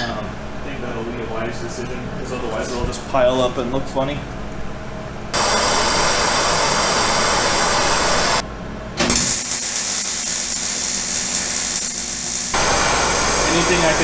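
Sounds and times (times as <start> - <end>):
gas torch hissing: 5.3 - 8.4, 9.0 - 14.0
welder hissing: 5.4 - 8.4, 9.1 - 14.0.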